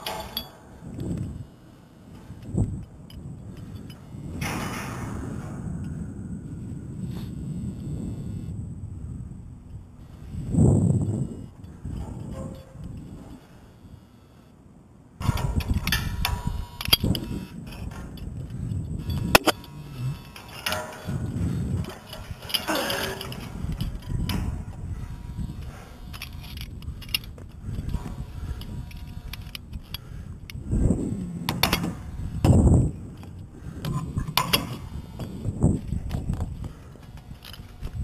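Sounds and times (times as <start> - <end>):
climbing gear clanking on metal: 0.0 - 0.7, 15.2 - 24.7
wind rumbling on microphone: 0.0 - 14.1, 15.2 - 38.0.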